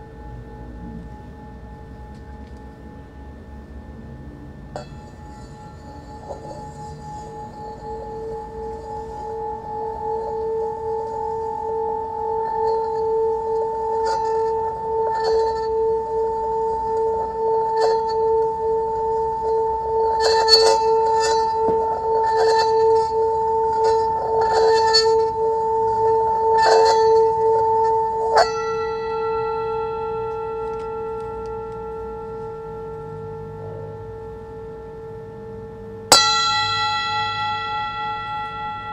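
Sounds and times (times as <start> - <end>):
sustained ringing metal tone: 0.0 - 38.9
scraping strokes along metal rim: 4.8 - 31.4
sharp metallic strike: 36.1 - 38.9.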